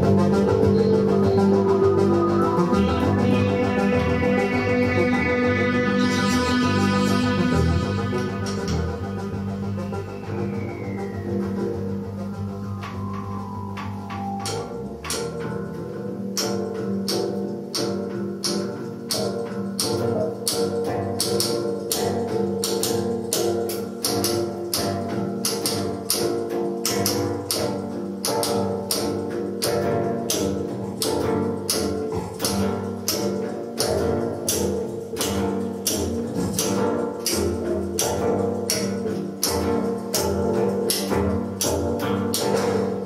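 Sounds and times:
sustained droning chord: 0:00.0 - 0:16.4
clicking percussive pulse: 0:00.0 - 0:43.0.

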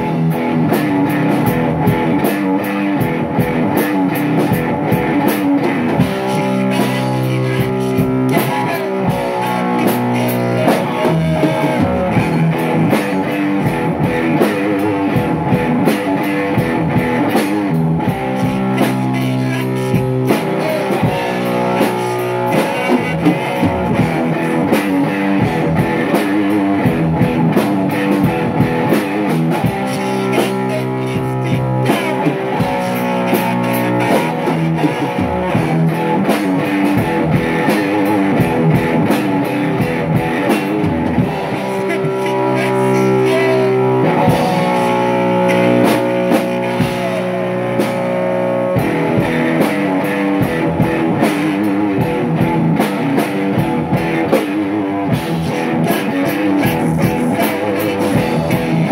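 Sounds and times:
rock music with guitar and drums: 0:00.0 - 0:58.9.

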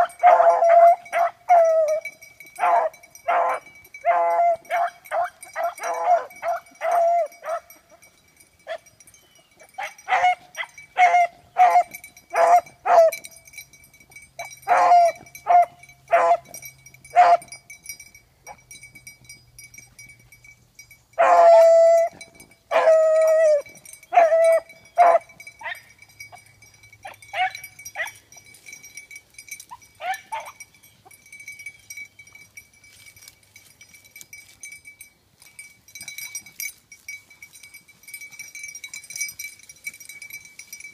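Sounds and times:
dogs baying and barking: 0:00.0 - 0:13.4, 0:14.1 - 0:17.7, 0:21.2 - 0:31.7.

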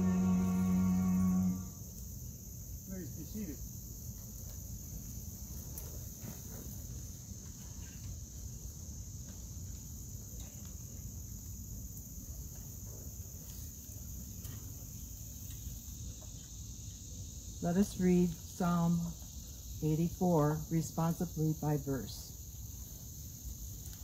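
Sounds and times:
insect chorus: 0:00.0 - 0:24.0.

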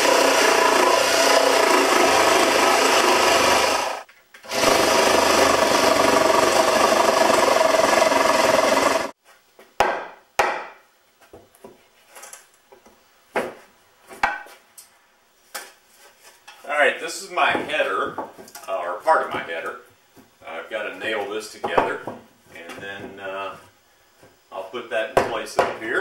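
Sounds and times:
power tool working into wood: 0:00.0 - 0:09.2.

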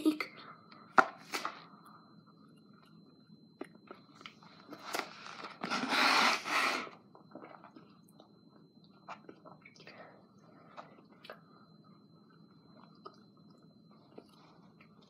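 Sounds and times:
mouth chewing and smacking: 0:12.8 - 0:15.0.

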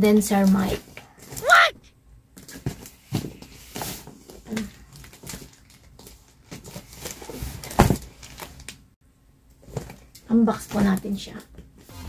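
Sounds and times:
plastic packaging rustling: 0:02.4 - 0:08.9.

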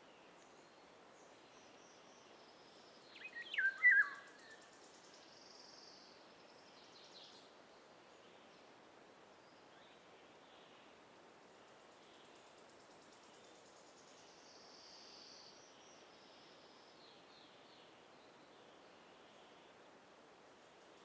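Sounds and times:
steady background hiss: 0:00.0 - 0:21.0
bird singing whistled phrase: 0:03.3 - 0:04.3.

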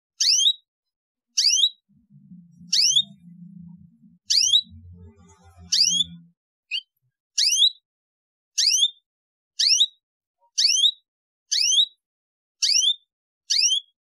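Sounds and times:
canary chirping: 0:00.2 - 0:00.6, 0:01.4 - 0:07.8, 0:08.6 - 0:09.0, 0:09.6 - 0:10.0, 0:10.6 - 0:12.0, 0:12.6 - 0:14.0
faint low hum: 0:01.9 - 0:06.3.

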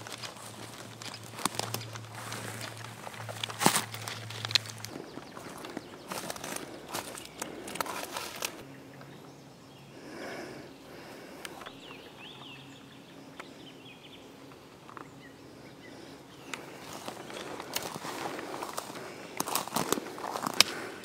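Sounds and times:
footsteps on dry twigs: 0:00.0 - 0:08.7, 0:14.5 - 0:21.0
bird chirps: 0:00.2 - 0:20.5.

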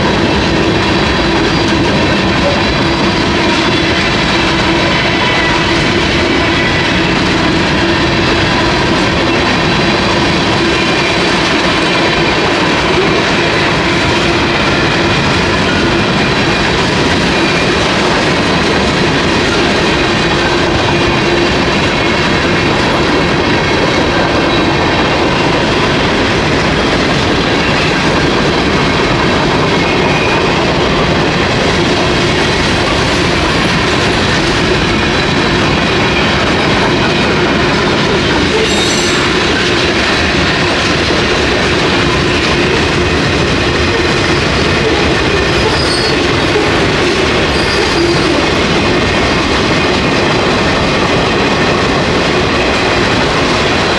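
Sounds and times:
freight train wheels rumbling: 0:00.0 - 0:53.9.

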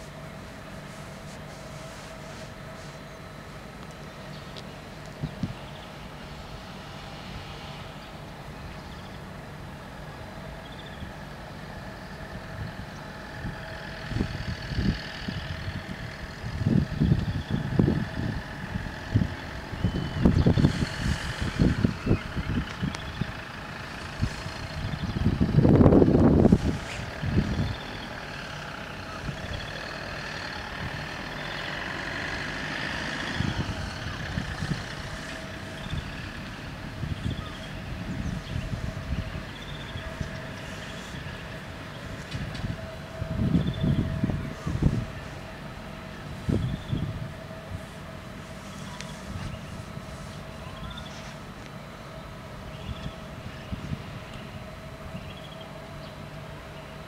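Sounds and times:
low rumbles: 0:00.0 - 0:57.0
level crossing warning bells: 0:27.0 - 0:57.0.

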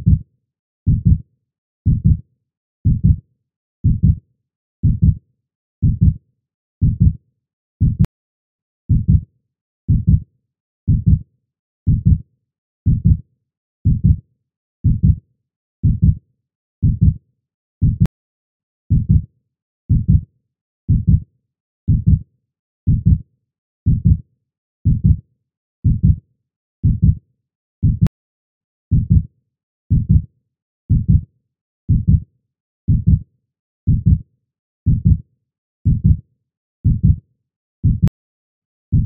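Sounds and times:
heartbeat double thump: 0:12.9 - 0:13.2, 0:17.8 - 0:18.1, 0:27.8 - 0:28.1, 0:30.9 - 0:31.2, 0:37.8 - 0:38.2.

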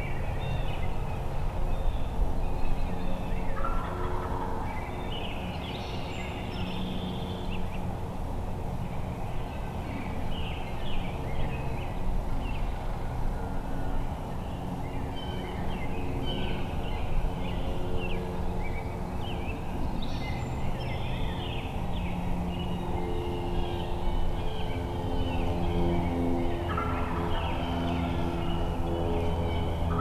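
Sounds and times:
wild turkeys calling: 0:26.7 - 0:28.2.

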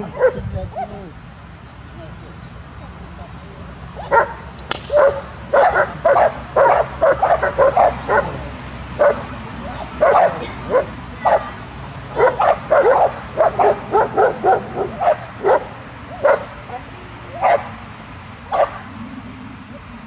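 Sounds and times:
dog barking excitedly: 0:04.0 - 0:09.3, 0:10.0 - 0:16.6, 0:17.4 - 0:17.8, 0:18.5 - 0:18.9.

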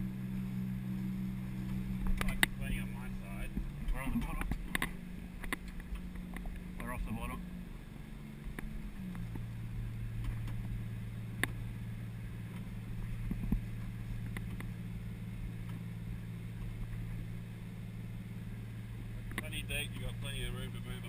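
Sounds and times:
diesel engine droning: 0:00.0 - 0:21.0
light clicks: 0:01.6 - 0:02.6.

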